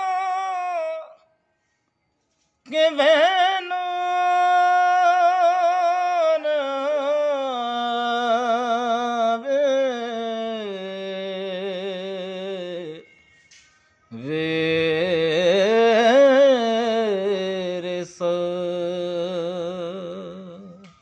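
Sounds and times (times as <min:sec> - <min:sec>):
man singing unaccompanied: 0:00.0 - 0:01.3, 0:02.6 - 0:13.1, 0:14.1 - 0:21.0.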